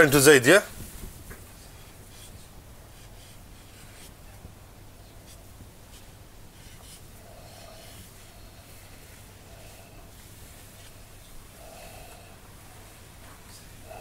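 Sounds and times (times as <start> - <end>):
low room hum: 0.0 - 14.0
marker scratching on whiteboard: 1.6 - 4.3, 5.1 - 12.3.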